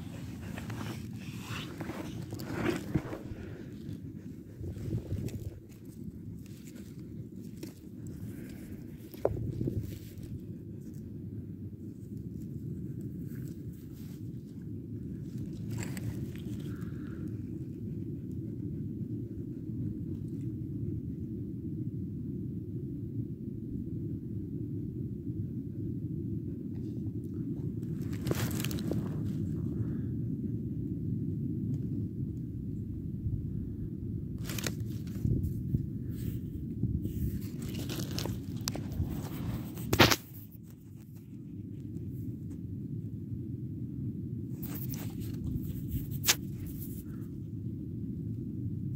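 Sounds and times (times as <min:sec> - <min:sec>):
wind rumble on microphone: 0:00.0 - 0:48.9
brief crackle: 0:37.3 - 0:41.2, 0:44.6 - 0:47.1.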